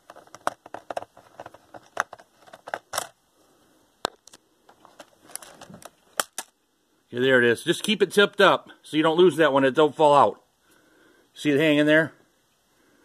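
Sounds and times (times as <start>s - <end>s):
plastic panel clicks and scrapes: 0.0s - 3.1s.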